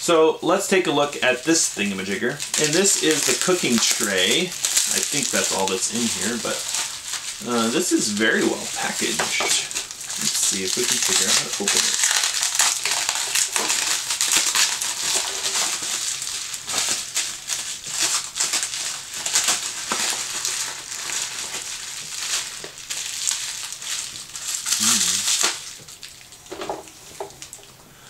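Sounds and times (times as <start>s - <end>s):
bubble wrap crinkling and crackling: 0.4s - 27.8s.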